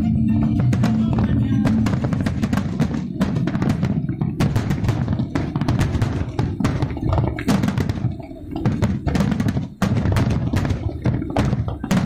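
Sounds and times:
fireworks bursting: 0.0s - 12.0s.

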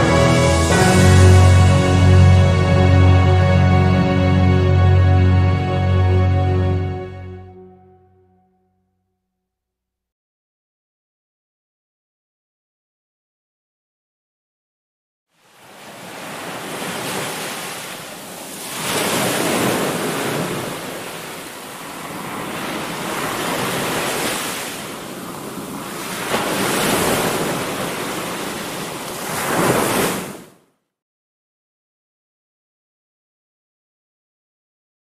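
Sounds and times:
small waves breaking on beach: 15.3s - 30.6s.

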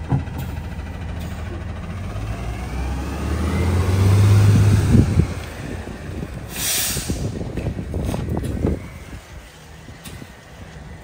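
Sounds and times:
clunks and rattles: 0.0s - 2.2s
garbage truck diesel engine: 0.0s - 11.0s
air brakes hissing: 6.4s - 7.7s.

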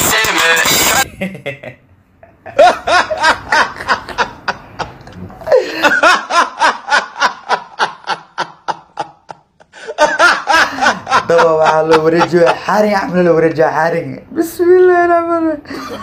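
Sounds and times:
man laughing hard: 0.7s - 12.8s.

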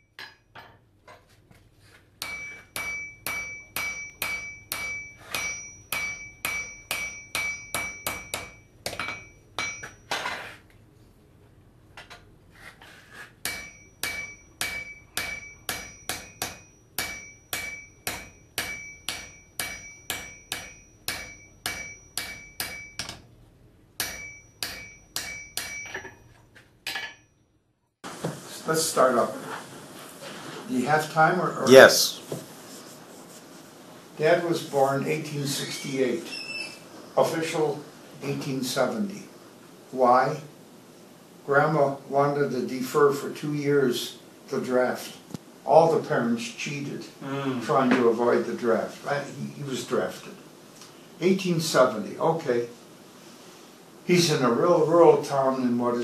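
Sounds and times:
hammer striking an anvil: 0.0s - 0.8s, 2.2s - 10.2s, 13.4s - 23.3s, 24.0s - 26.3s, 26.9s - 27.4s.

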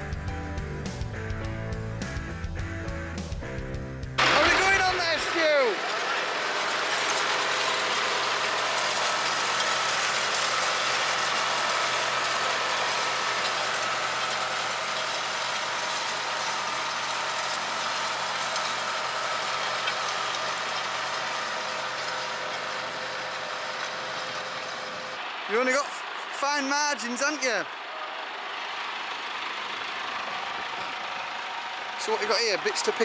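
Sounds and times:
tractor engine running: 0.0s - 33.0s
steel tines rattling: 4.2s - 24.9s.

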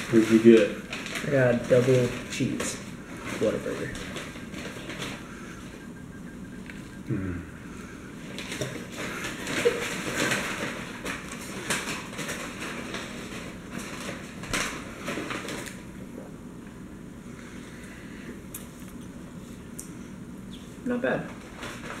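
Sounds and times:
paper wrapper crinkling: 0.0s - 5.9s, 8.2s - 16.0s, 21.3s - 22.0s.

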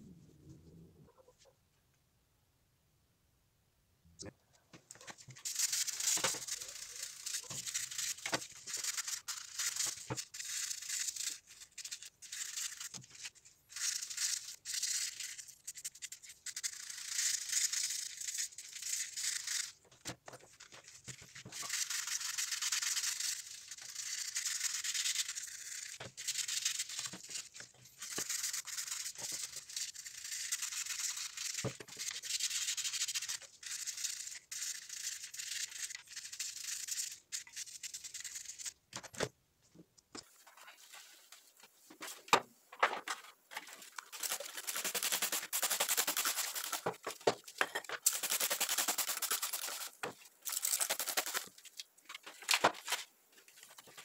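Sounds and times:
toothbrush scrubbing metal: 5.1s - 19.8s, 21.1s - 38.8s, 43.6s - 51.8s.

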